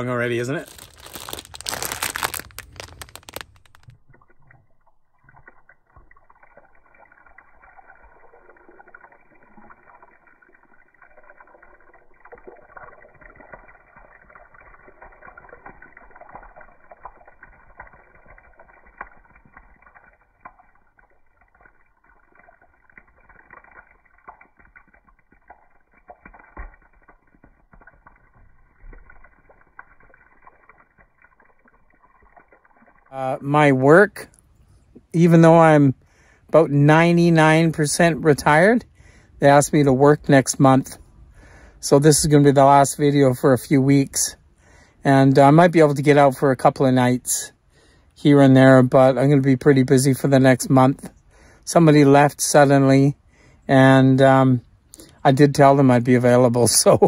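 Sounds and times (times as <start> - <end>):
plastic bag crinkling: 0.0 - 5.0
water trickling over grapes: 0.0 - 57.0.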